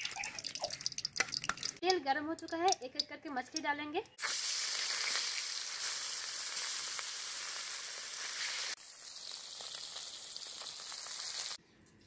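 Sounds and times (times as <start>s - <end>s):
fish sizzling in hot oil: 0.0s - 1.8s, 4.2s - 11.6s.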